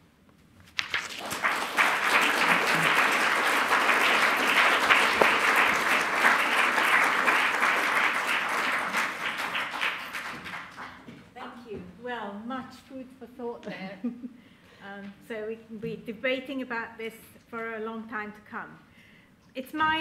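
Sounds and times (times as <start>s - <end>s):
audience applauding: 0.8s - 11.1s.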